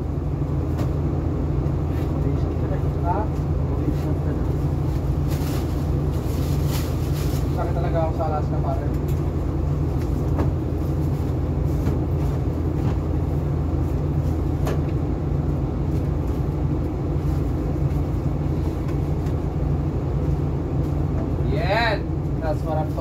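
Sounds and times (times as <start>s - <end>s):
low machinery hum: 0.0s - 23.0s.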